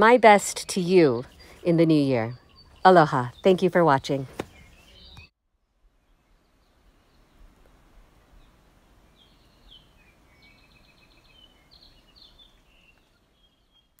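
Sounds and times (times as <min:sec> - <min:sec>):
bird chirping and trilling: 0:00.0 - 0:05.3
faint outdoor background noise: 0:00.0 - 0:14.0.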